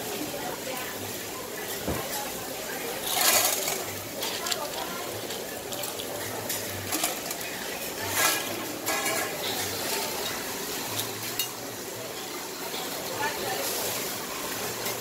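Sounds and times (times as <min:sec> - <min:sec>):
metal utensils and dishes clattering: 0:02.9 - 0:14.0.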